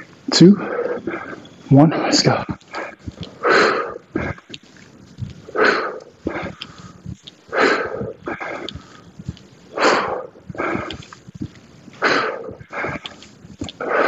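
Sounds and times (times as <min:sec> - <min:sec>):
man breathing hard: 0:02.7 - 0:04.6, 0:05.4 - 0:11.2, 0:12.0 - 0:14.0.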